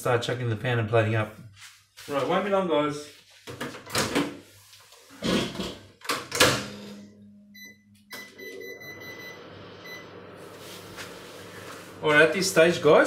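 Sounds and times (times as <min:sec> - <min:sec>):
microwave oven humming: 0:06.2 - 0:13.0
short electronic beeps: 0:07.0 - 0:10.1.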